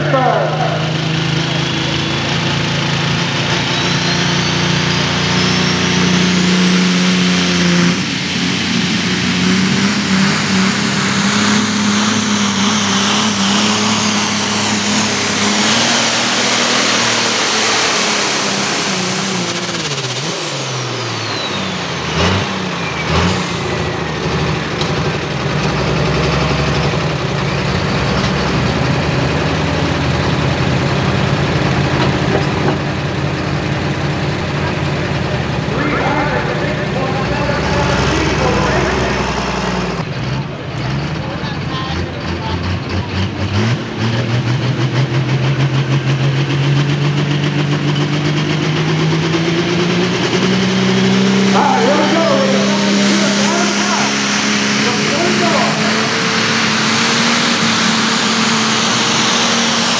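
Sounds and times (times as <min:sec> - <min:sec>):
engine idling: 0:00.0 - 0:59.9
tractor engine running hard: 0:00.0 - 0:59.9.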